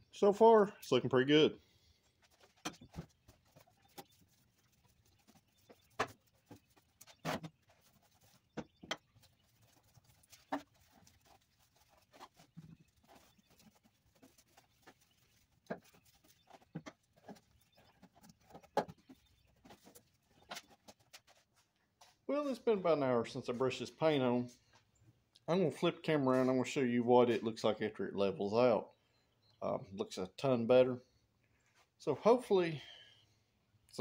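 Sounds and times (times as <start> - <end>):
brush scraping on metal: 1.8 - 21.6.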